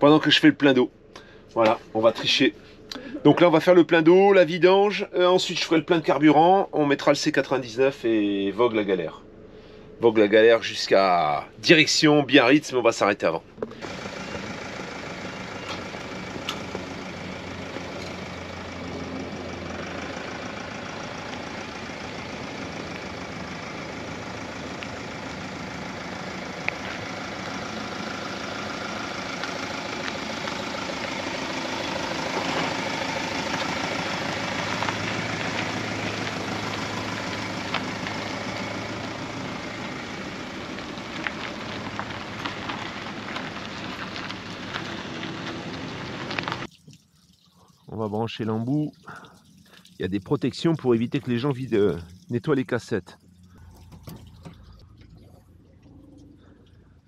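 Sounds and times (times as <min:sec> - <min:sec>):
engine running at low revs: 0:13.4 - 0:46.7.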